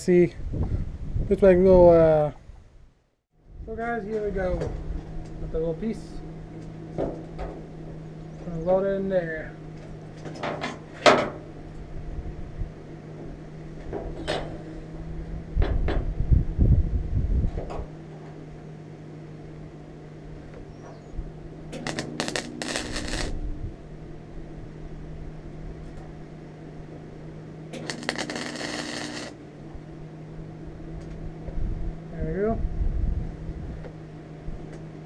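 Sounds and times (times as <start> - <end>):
steady low hum: 0.0 - 35.0
welder crackling: 21.7 - 23.4, 27.8 - 29.4.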